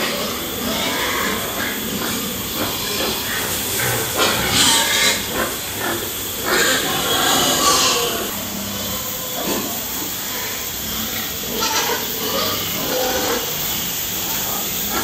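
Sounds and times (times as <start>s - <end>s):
pigs grunting: 0.0s - 15.0s
steady background hiss: 0.0s - 15.0s.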